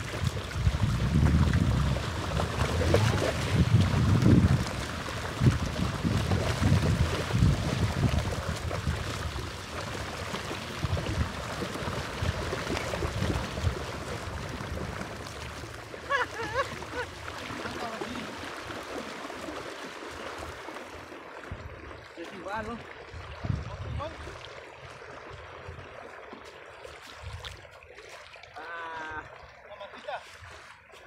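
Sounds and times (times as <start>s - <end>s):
wind buffeting microphone: 0.0s - 15.5s, 22.6s - 24.5s
small waves washing ashore: 0.0s - 31.0s.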